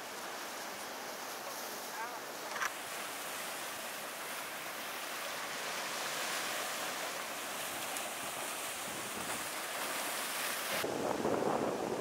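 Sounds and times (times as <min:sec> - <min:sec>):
sea surf washing in: 0:00.0 - 0:12.0.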